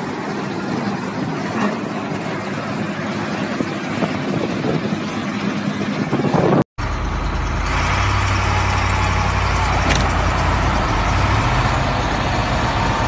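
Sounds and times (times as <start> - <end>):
truck diesel engine running: 6.8 - 13.0
wheel loader engine under load: 6.8 - 13.0.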